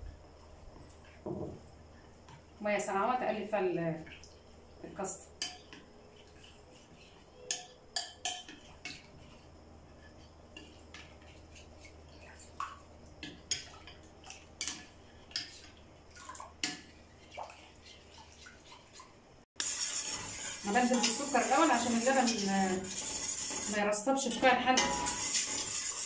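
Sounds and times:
spoon clinking against glass bowl: 7.5s - 8.6s.

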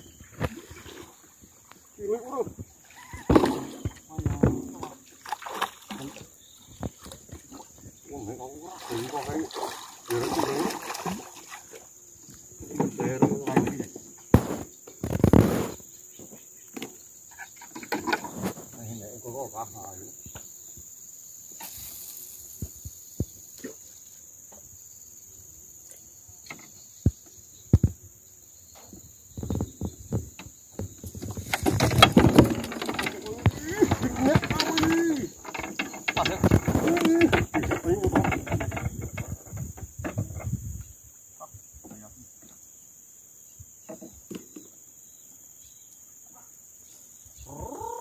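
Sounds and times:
insects chirring: 0.0s - 48.0s
knocks and clicks: 31.2s - 40.5s
indistinct voices: 32.3s - 38.8s.

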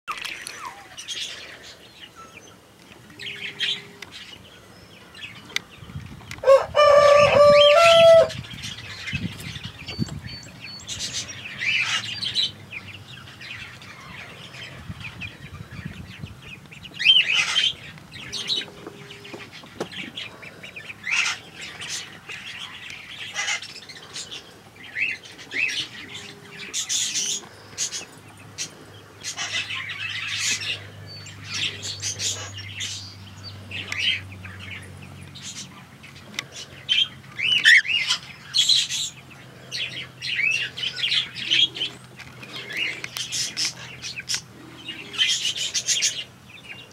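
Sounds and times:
birds chirping and whistling: 0.1s - 46.9s
loud drawn-out crow: 6.4s - 8.4s.

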